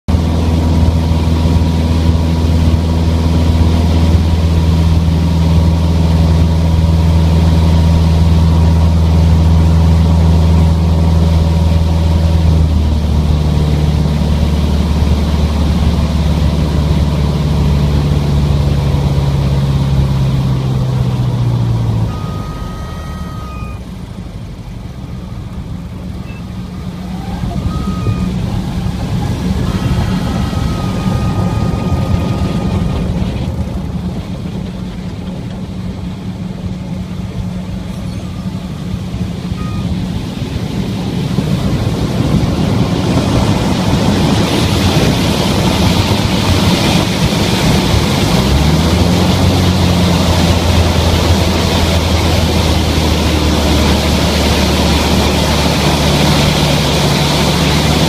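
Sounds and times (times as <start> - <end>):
airplane engine and propeller: 0.0 - 58.0
airflow noise: 20.7 - 48.4.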